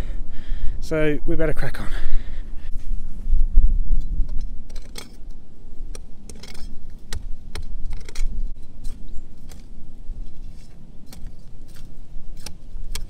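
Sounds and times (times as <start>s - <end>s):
spade chopping stony soil: 5.9s - 13.0s.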